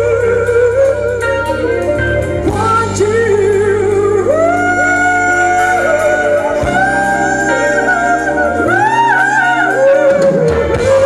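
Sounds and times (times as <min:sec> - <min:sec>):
lead guitar bending notes: 0:00.0 - 0:11.0
steady bass notes: 0:00.0 - 0:11.0.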